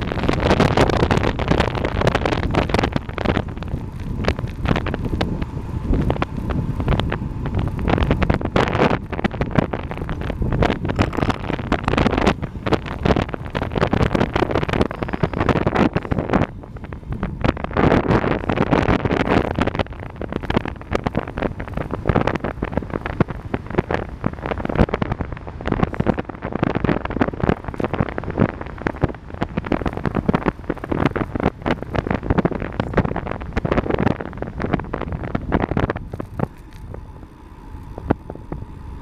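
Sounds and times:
wind buffeting microphone: 0.0s - 39.0s.

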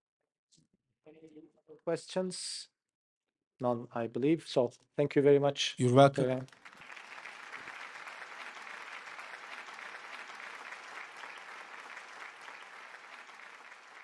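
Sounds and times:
audience applauding: 6.4s - 14.0s.

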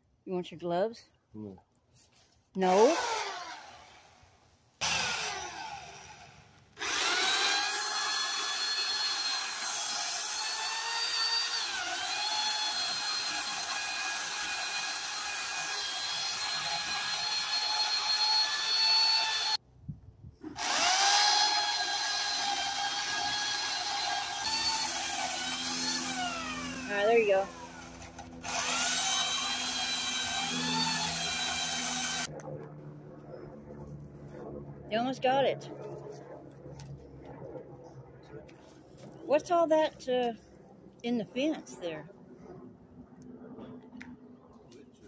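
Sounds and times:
electric pole saw running: 2.7s - 4.2s, 4.8s - 19.6s, 20.4s - 32.3s.

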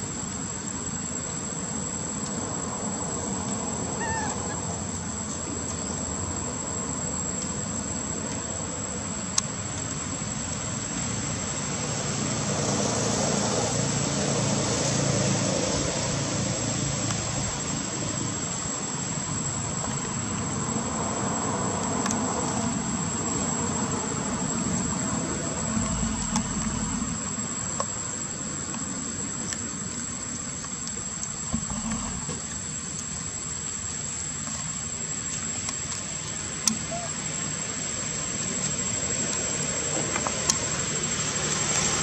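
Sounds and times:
thin high drone: 24.9s - 27.7s
low rumble: 25.4s - 27.7s.

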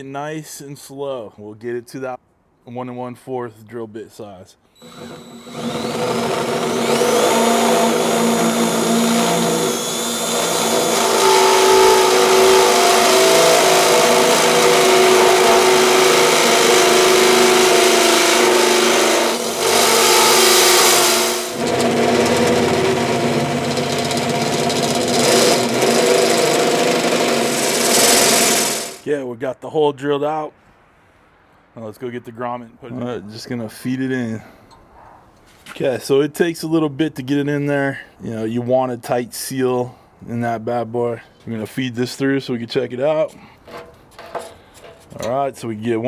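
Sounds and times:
cordless drill through steel: 4.8s - 29.0s.

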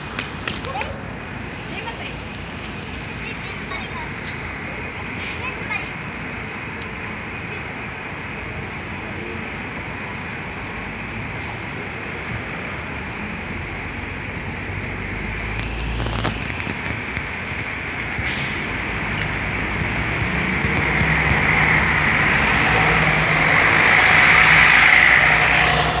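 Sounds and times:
bus engine running: 0.0s - 26.0s
air hiss: 17.3s - 19.6s.

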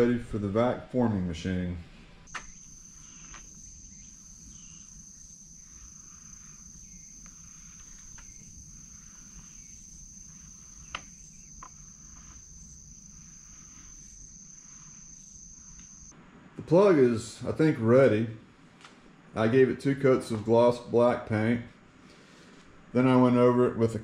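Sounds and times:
sharp click: 2.3s - 2.6s
high-pitched insect trill: 2.3s - 16.2s.

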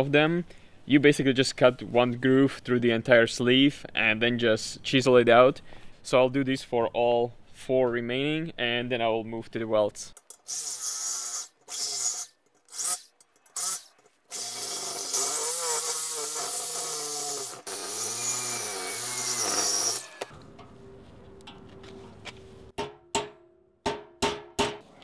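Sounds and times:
reciprocating saw cutting metal: 10.5s - 20.4s.

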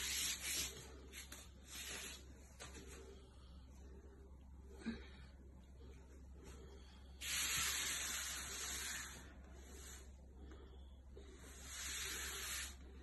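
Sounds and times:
forceful hissing breath: 7.1s - 10.2s, 11.3s - 13.0s.

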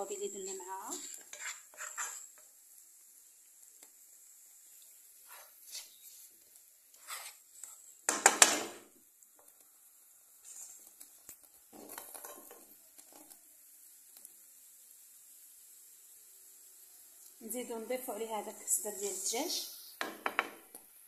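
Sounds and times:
spatula scraping frying pan: 0.6s - 2.6s, 5.2s - 8.4s, 10.4s - 13.3s
utensil knocking on pan: 8.1s - 8.8s, 20.0s - 20.7s.

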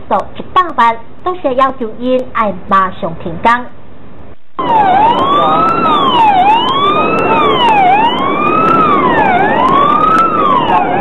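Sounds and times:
steady rushing noise: 3.8s - 11.0s
emergency vehicle siren wailing: 4.6s - 11.0s.

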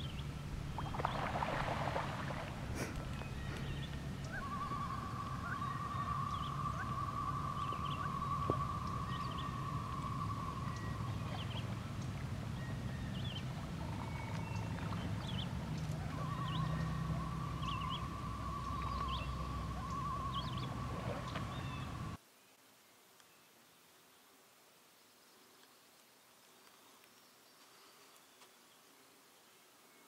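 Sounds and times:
low rumble: 0.0s - 22.2s.

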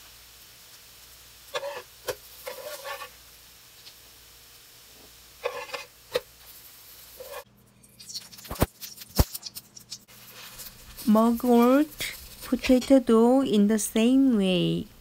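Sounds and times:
hot oil crackling and popping: 0.0s - 12.9s
metal spatula scraping pan: 1.5s - 3.2s, 5.4s - 5.9s, 7.2s - 7.5s.

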